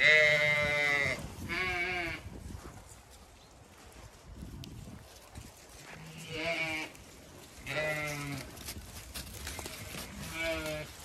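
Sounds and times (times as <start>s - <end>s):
sheep bleating: 0.0s - 2.2s, 5.9s - 7.0s, 7.6s - 8.5s, 9.6s - 11.0s.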